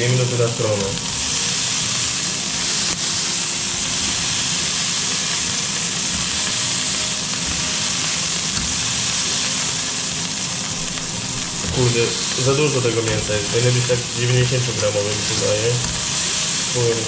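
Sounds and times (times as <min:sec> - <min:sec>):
meat sizzling in a frying pan: 0:00.0 - 0:17.0.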